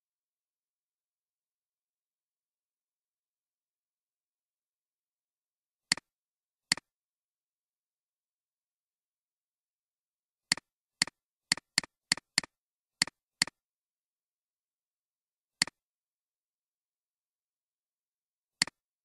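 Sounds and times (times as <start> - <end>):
computer mouse clicks: 5.9 - 6.1, 6.7 - 6.9, 10.5 - 13.6.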